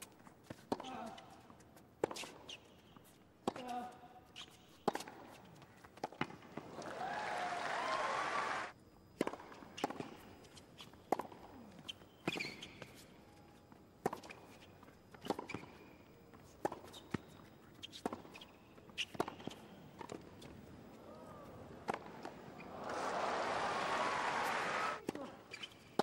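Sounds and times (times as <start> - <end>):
shoe squeak: 4.3 - 4.8, 11.8 - 13.4, 16.8 - 19.8, 22.5 - 23.0, 25.5 - 26.0
crowd applause and cheering: 6.7 - 8.7, 22.6 - 25.0
tennis ball bouncing: 19.0 - 20.6, 21.2 - 25.2.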